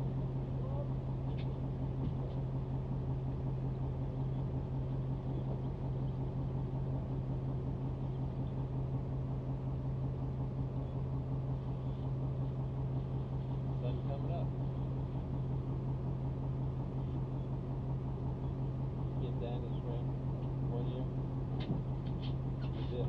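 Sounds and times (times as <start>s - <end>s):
boat engine droning: 0.0s - 23.0s.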